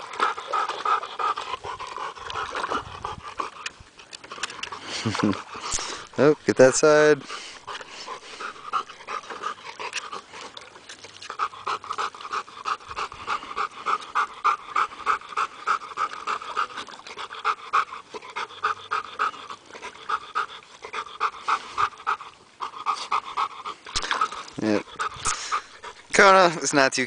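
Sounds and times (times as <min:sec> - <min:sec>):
dog panting: 0:00.0 - 0:26.9.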